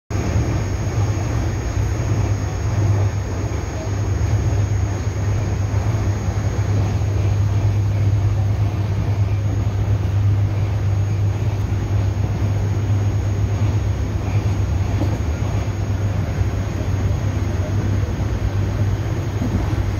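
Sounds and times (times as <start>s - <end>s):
train rumble from inside coach: 0.1s - 19.9s.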